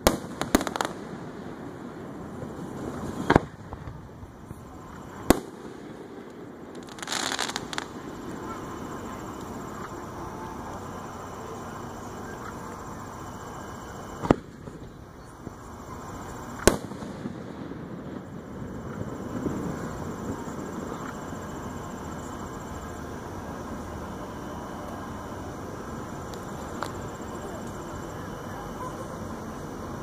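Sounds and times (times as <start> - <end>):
firework shells bursting: 0.0 - 2.0, 5.0 - 10.0, 16.4 - 21.6
firework hiss: 0.0 - 30.0.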